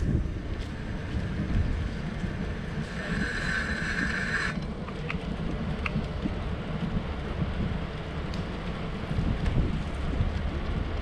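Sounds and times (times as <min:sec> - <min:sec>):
high-pitched whine: 0:00.0 - 0:04.8
bicycle rolling on pavement: 0:00.0 - 0:11.0
wind buffeting microphone: 0:00.0 - 0:11.0.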